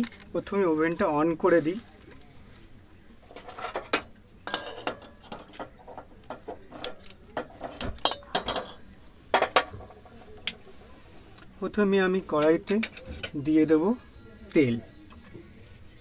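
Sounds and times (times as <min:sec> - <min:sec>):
metal clinking against wok: 0:03.3 - 0:10.0.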